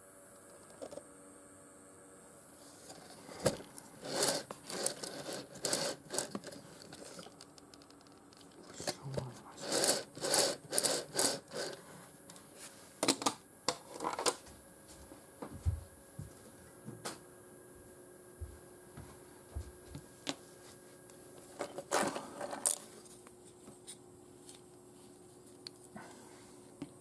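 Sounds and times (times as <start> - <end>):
rubbing and scraping: 2.9 - 7.3.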